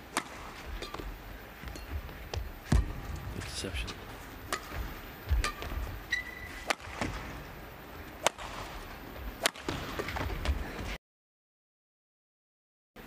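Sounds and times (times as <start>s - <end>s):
racket striking shuttlecock: 0.0s - 3.2s, 4.4s - 10.6s
low arena hum: 0.0s - 11.0s
shoe squeak on court: 6.1s - 6.7s.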